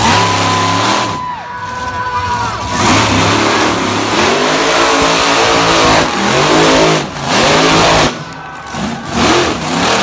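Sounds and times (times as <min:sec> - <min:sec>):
monster truck engine revving: 0:00.0 - 0:10.0.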